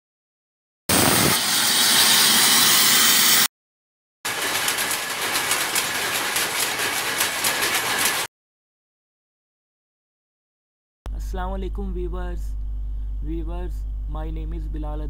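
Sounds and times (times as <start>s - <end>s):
flickering rushing noise: 0.9s - 3.4s.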